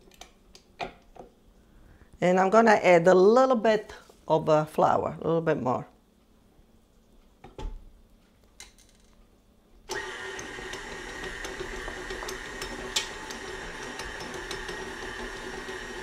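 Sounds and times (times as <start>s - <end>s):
stand mixer motor running: 9.9s - 16.0s.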